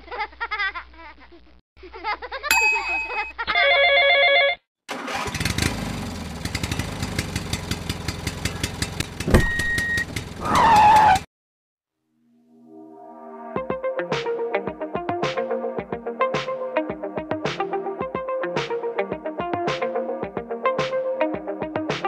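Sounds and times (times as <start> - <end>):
tractor engine chugging: 6.3 - 10.4.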